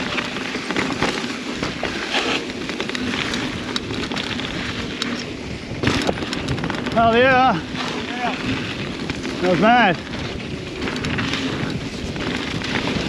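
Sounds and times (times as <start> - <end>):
bike clattering and rattling: 0.0 - 13.0
bike tyres on dirt and gravel: 0.0 - 13.0.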